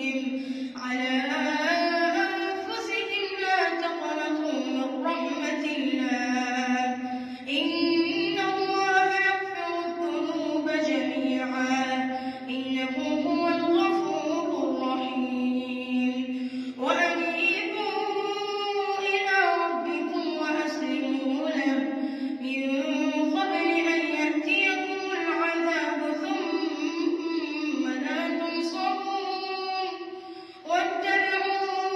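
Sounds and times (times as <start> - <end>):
boy chanting melodically: 0.0 - 31.9.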